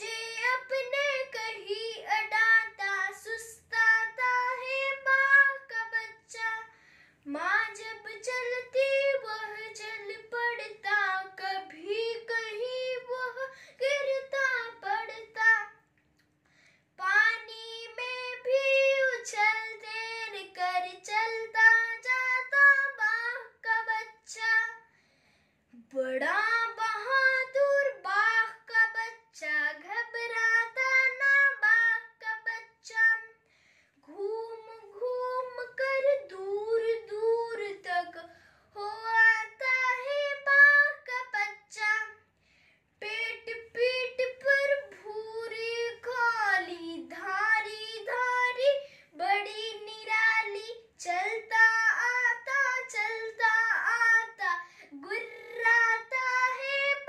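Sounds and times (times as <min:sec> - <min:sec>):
boy chanting a poem: 0:00.0 - 0:15.8, 0:43.0 - 0:57.0.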